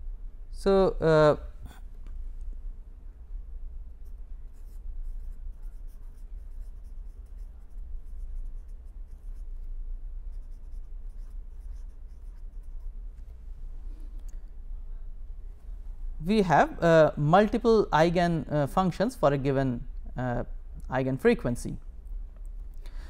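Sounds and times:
low hum: 0.0 - 18.7
pen scratching on paper: 4.0 - 9.7, 10.3 - 13.0.

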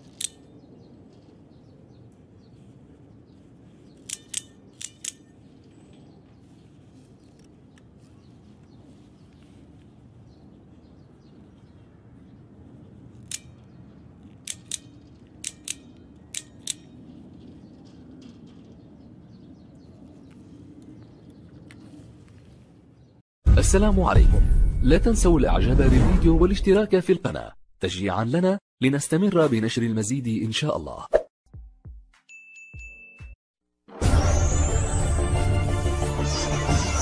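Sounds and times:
switchblade metallic clicks: 0.0 - 0.5, 4.0 - 5.4, 13.2 - 17.0.

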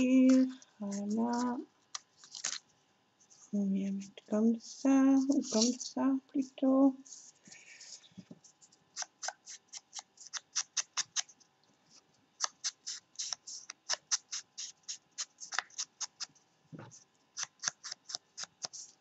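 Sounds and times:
hands working paper ticks: 0.0 - 2.6, 8.9 - 11.3, 12.4 - 16.3, 16.9 - 19.0.

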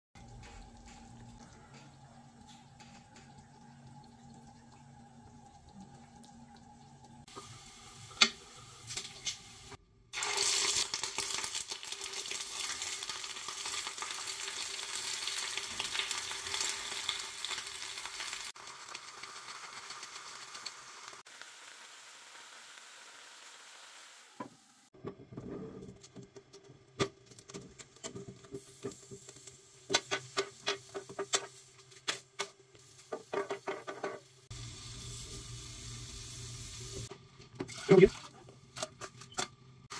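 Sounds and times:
food sizzling in a pan: 7.2 - 25.0, 28.2 - 37.1, 37.7 - 38.4.

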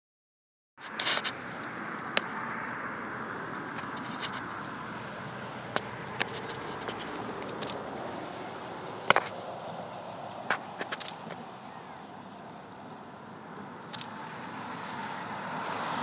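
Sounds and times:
hiss of highway traffic: 0.8 - 16.0
sharp clicks: 13.9 - 14.1.

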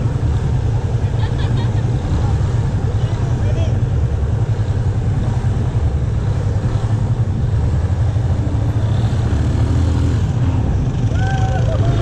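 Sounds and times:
motorcycle engine rumbling: 0.0 - 12.0.

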